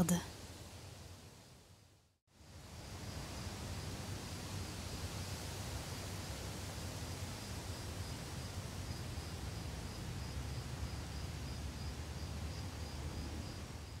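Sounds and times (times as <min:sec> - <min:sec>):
room hiss and low rumble: 0:00.0 - 0:14.0.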